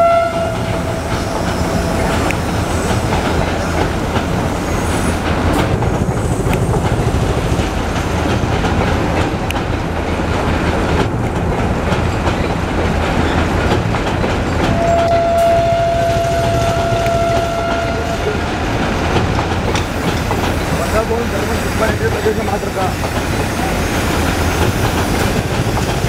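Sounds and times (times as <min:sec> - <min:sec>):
train horn blast: 0:00.0 - 0:02.4, 0:14.7 - 0:18.5
train coaches rumbling over bridge: 0:00.0 - 0:26.0
wheels clattering over rail joints: 0:00.2 - 0:26.0.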